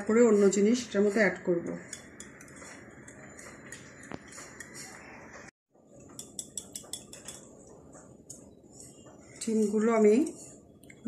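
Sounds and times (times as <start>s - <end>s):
whisk clicking against glass bowl: 6.1s - 7.5s.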